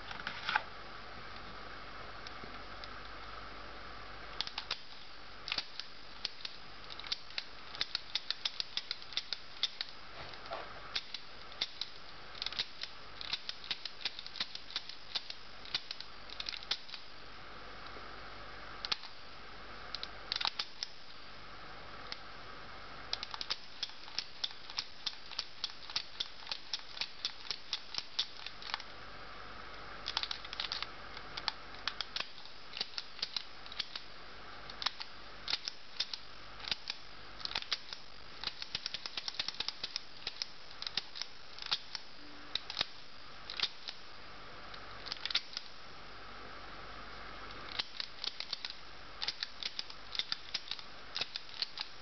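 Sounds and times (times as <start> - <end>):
mechanical calculator clicking: 5.5 - 9.9, 11.0 - 17.0, 20.3 - 21.0, 23.1 - 28.8, 30.0 - 34.1, 34.7 - 42.0, 42.6 - 44.0, 47.7 - 52.0.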